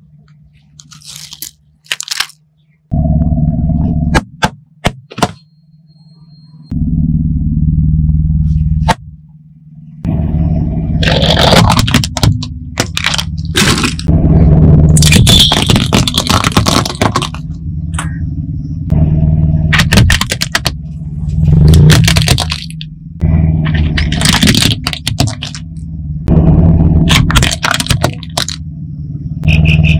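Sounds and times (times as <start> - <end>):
tyre crushing plastic: 0.8 - 2.4, 11.0 - 14.1, 15.0 - 17.5, 19.8 - 20.8, 21.7 - 22.8, 23.7 - 25.6, 27.1 - 28.6
car engine idling: 6.8 - 29.8.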